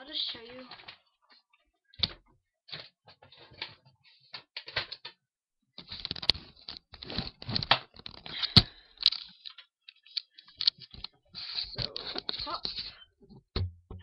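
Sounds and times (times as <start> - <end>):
things rustling and clicking: 0.2 - 5.2, 5.8 - 14.0.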